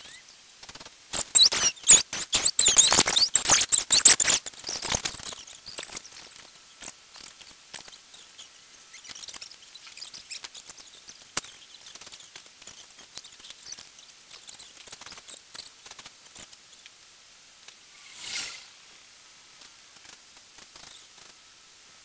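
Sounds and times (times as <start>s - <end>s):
high-pitched squeaky chirps: 0.0s - 0.4s, 1.1s - 16.8s
faint clicks: 0.0s - 17.8s.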